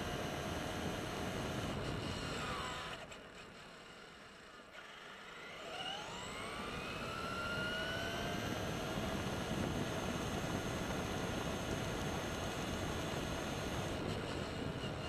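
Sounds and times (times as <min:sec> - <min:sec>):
toy truck electric motor whining: 0:01.3 - 0:08.8.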